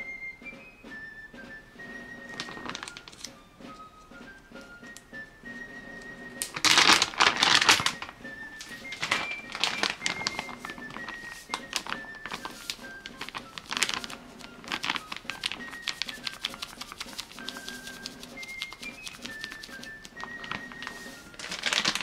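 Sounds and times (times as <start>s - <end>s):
background music melody: 0.0s - 22.0s
flour bag crinkling: 2.3s - 3.3s, 6.4s - 22.0s.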